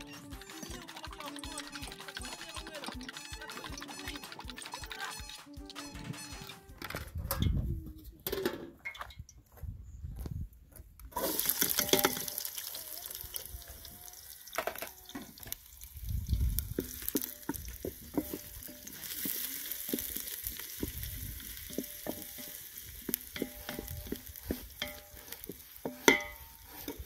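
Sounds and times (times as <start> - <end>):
wooden spoon knocking metal pot: 0.0 - 7.0, 11.6 - 12.4, 16.8 - 27.0
onions sizzling in a pot: 11.2 - 27.0.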